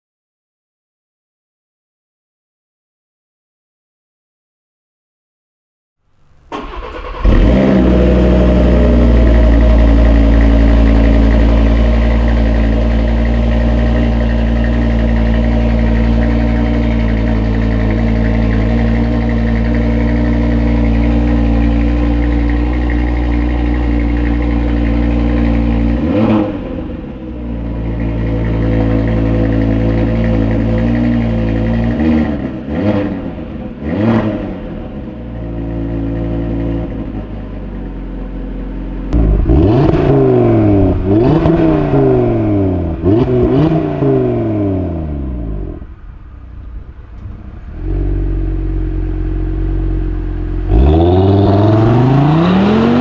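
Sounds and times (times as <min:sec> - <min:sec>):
car engine starting and idling: 0:06.1 - 0:53.0.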